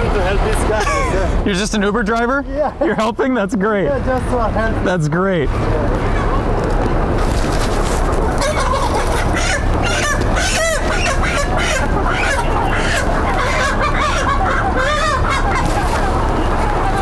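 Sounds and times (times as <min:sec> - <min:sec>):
hens squawking and clucking: 0:05.5 - 0:17.0.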